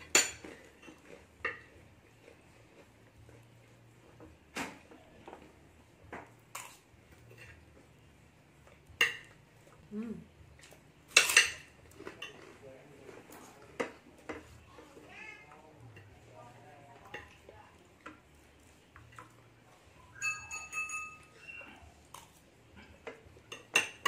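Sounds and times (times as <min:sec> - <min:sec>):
spoon clinking on ceramic plate: 0:20.1 - 0:21.6.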